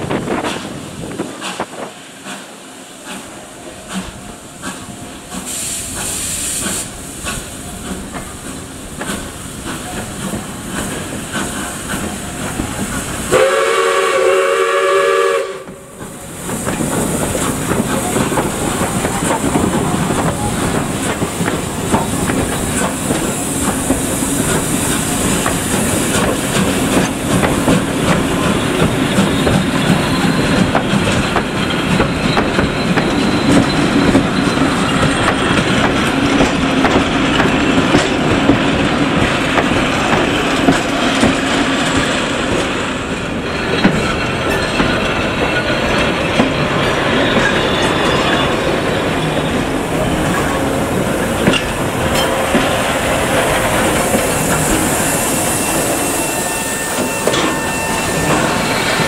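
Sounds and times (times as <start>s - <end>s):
steam hissing: 0.0s - 59.0s
steam locomotive exhaust beats: 0.0s - 59.0s
steam whistle blast: 13.3s - 15.8s, 54.8s - 59.0s
wheels clicking over rail joints: 16.0s - 49.3s, 50.0s - 54.8s.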